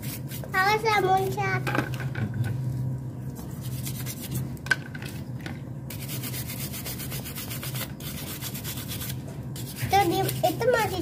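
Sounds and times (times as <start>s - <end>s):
steady low hum: 0.0s - 11.0s
brush scrubbing engine casing: 5.9s - 11.0s.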